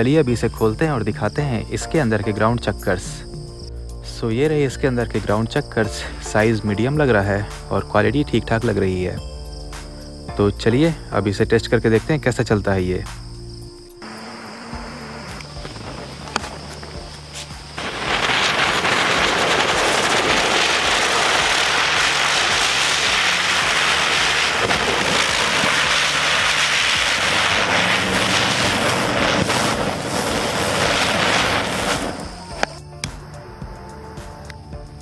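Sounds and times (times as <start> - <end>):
firework wheel hissing sparks: 14.0 - 32.9.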